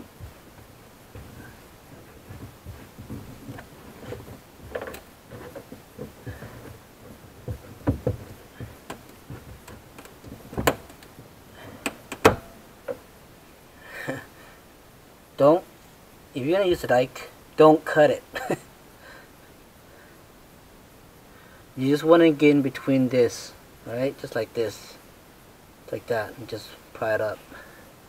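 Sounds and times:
sharp knocks: 0:01.2 - 0:11.0, 0:11.9 - 0:13.0.

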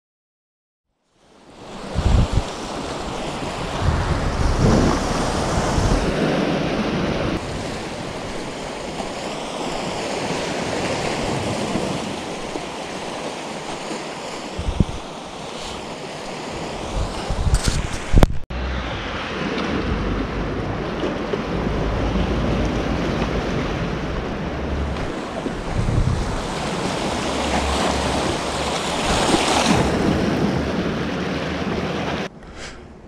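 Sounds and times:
sea surf washing: 0:01.2 - 0:33.0
wind blowing across microphone: 0:01.7 - 0:09.0, 0:14.4 - 0:15.8, 0:16.6 - 0:27.3.

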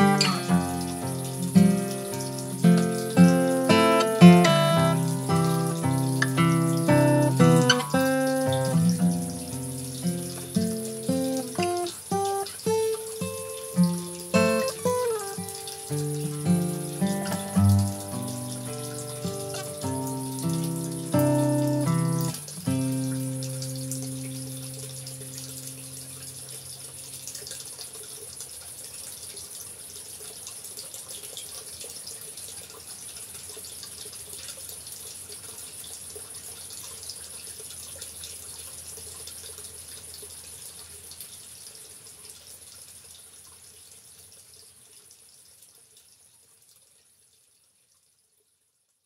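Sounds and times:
guitar music: 0:00.0 - 0:26.4.

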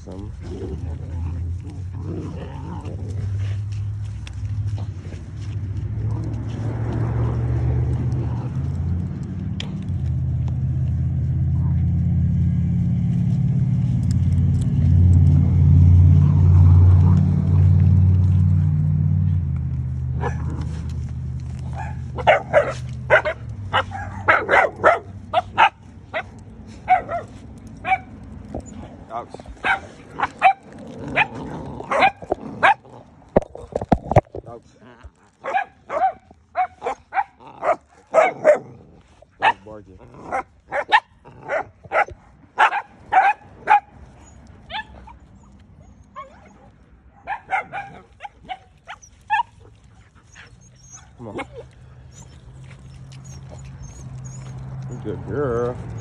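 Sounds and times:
dogs barking and yipping: 0:13.0 - 0:33.4, 0:35.0 - 0:56.0
puppy yips: 0:42.0 - 0:49.7, 0:50.4 - 0:54.8.

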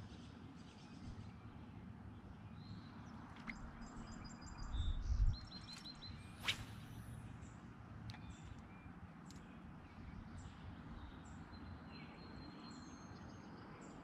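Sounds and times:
songbirds chirping: 0:00.0 - 0:14.0
sharp swish: 0:06.4 - 0:07.2.

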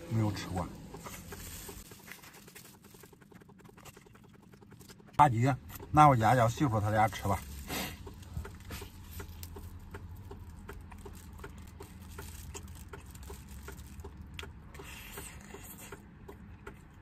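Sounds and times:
low steady hum: 0:00.0 - 0:17.0
man chewing with wet lip-smacking: 0:00.8 - 0:06.6, 0:07.9 - 0:17.0.

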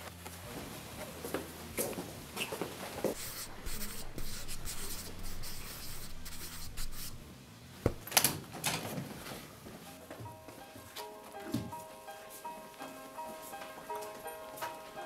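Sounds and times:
paintbrush strokes on paper: 0:03.0 - 0:07.2
sharp knock: 0:07.9 - 0:08.1.

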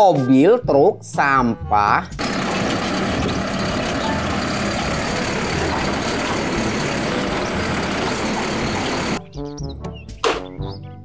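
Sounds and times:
hydraulic arm lifting cart: 0:02.2 - 0:09.2
truck engine running: 0:02.2 - 0:09.2.

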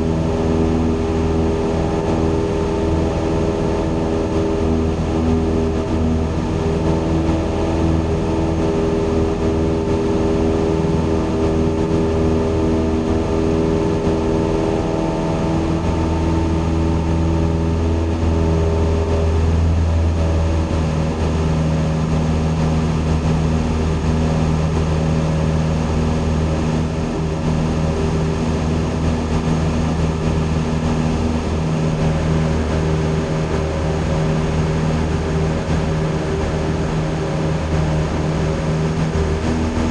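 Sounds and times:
propeller aircraft engine droning: 0:00.0 - 0:39.9.

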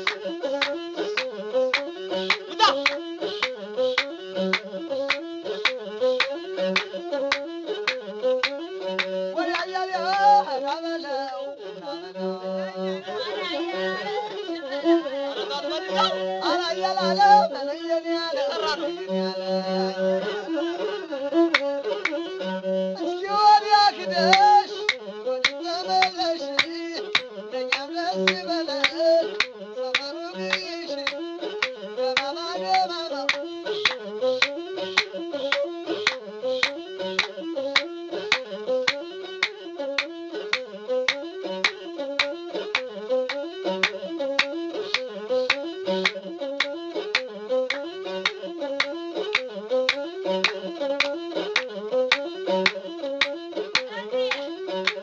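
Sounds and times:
person singing: 0:00.0 - 0:04.0, 0:08.8 - 0:40.0, 0:47.1 - 0:55.0
bowled one-string fiddle melody: 0:00.0 - 0:55.0.

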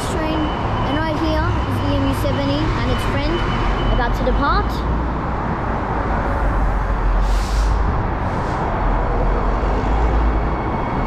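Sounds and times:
road traffic roar: 0:00.0 - 0:11.0
wind rumbling on microphone: 0:05.2 - 0:11.0
short hisses: 0:07.2 - 0:07.8.

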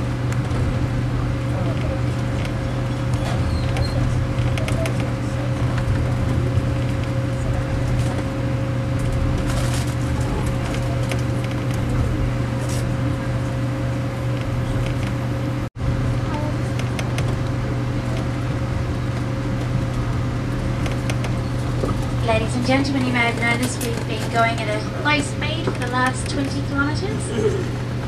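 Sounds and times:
train carriage rumble and hum: 0:00.0 - 0:28.0.

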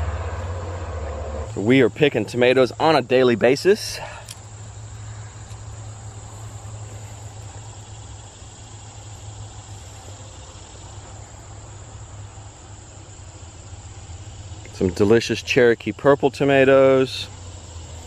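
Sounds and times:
low hum: 0:00.0 - 0:02.8
insects chirring: 0:00.0 - 0:18.0.

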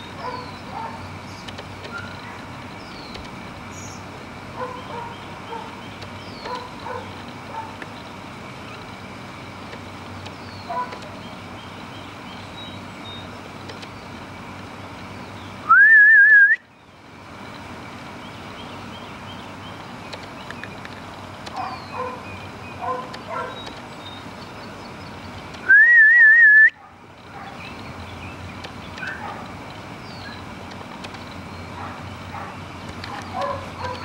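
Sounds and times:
birds chirping faintly: 0:00.0 - 0:15.7, 0:16.6 - 0:25.7, 0:26.8 - 0:34.0
person whistling: 0:15.7 - 0:16.6, 0:25.7 - 0:26.8.

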